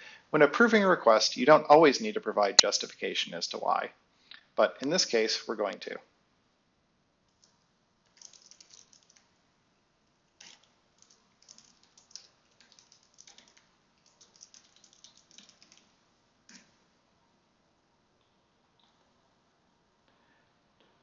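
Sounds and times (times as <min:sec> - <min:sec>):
typing on computer keyboard: 0:07.3 - 0:09.3, 0:10.4 - 0:15.9.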